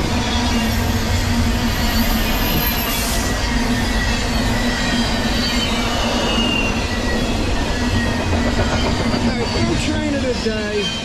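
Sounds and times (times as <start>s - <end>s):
steel wheels rumbling on rail: 0.0s - 11.0s
faint high-pitched wheel squeals: 1.7s - 9.9s.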